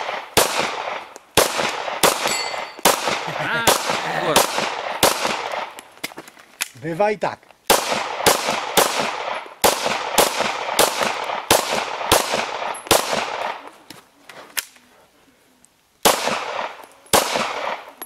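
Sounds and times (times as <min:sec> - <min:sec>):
pistol shots with echo: 0:00.0 - 0:05.8, 0:07.7 - 0:13.7, 0:16.0 - 0:18.0.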